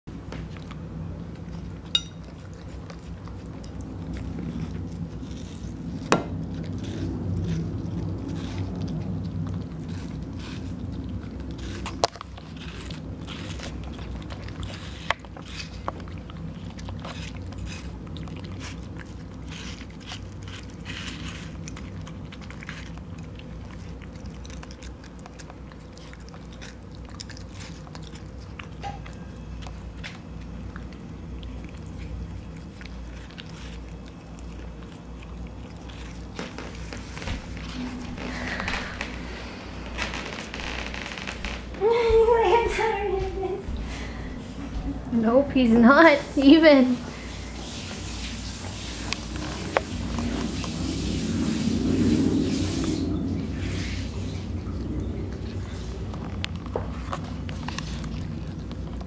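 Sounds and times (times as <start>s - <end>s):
dog chewing wet food: 0.1s - 40.0s, 43.7s - 59.0s.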